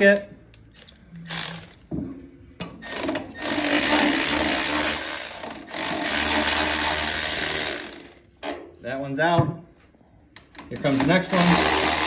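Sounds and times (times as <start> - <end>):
electric ratchet motor spinning: 0.8 - 1.8, 2.8 - 8.2, 10.8 - 12.0.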